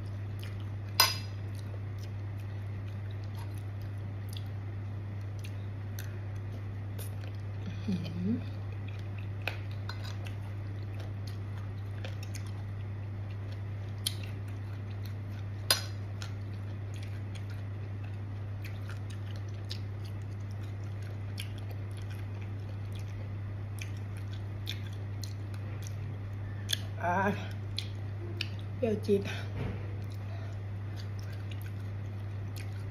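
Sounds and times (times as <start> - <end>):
soft chewing: 0.0 - 32.9
steady low hum: 0.0 - 32.9.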